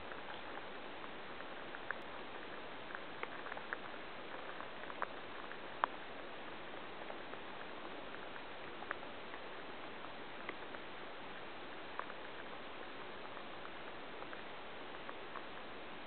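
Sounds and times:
stream water flowing: 0.0s - 16.0s
light ticks: 1.4s - 10.9s.

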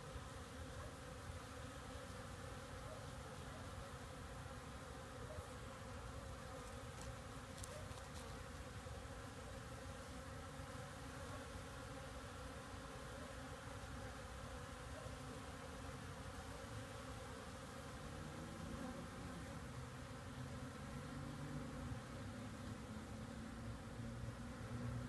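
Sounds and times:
bees buzzing: 0.0s - 25.0s.

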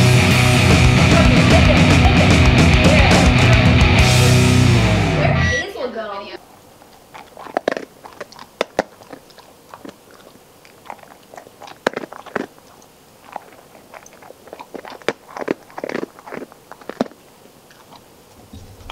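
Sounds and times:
dog chewing: 6.5s - 18.9s.

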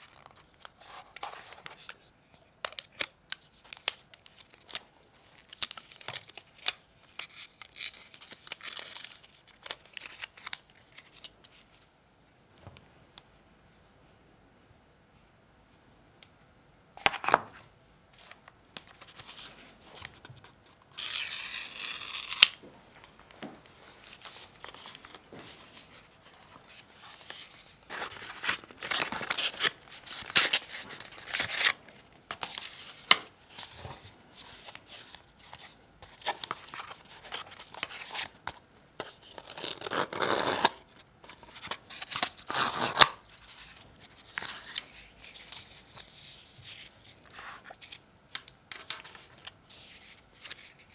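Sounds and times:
paper rustling and crinkling: 18.2s - 40.3s
paper packaging tearing: 20.9s - 22.6s, 41.7s - 43.2s.

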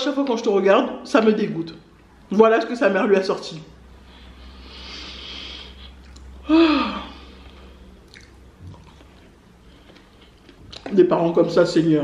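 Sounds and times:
faint chewing: 5.8s - 6.4s, 7.3s - 11.1s
woman humming hmm: 6.4s - 7.2s
woman exhaling: 6.4s - 7.4s.

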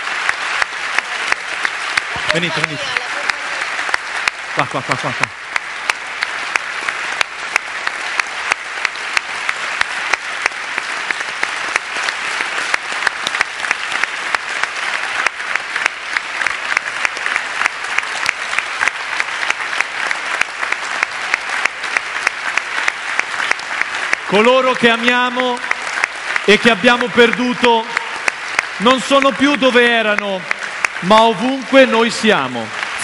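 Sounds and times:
audience applauding: 0.0s - 33.0s.

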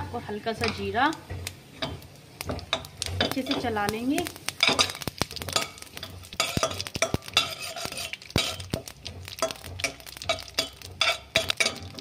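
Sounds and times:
spices sizzling in oil: 0.0s - 12.0s
metal spatula scraping a pan: 4.6s - 12.0s.

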